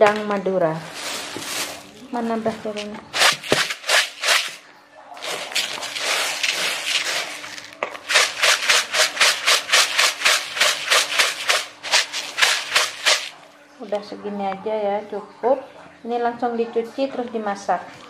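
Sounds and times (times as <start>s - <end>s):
dry grains swishing in plastic basin: 3.2s - 4.6s, 5.2s - 13.4s.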